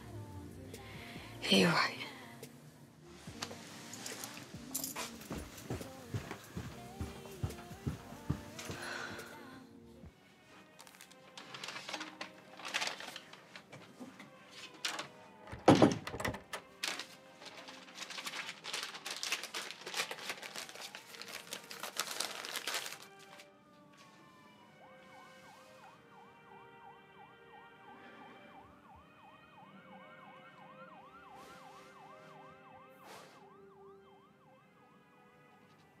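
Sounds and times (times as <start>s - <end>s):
paper rustling: 3.2s - 9.1s, 10.5s - 24.2s.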